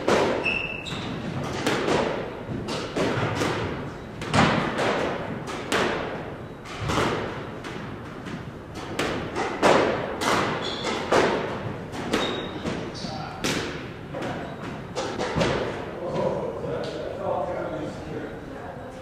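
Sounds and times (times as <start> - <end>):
racket striking squash ball: 0.0 - 15.9
ball hitting walls and floor: 0.0 - 17.0.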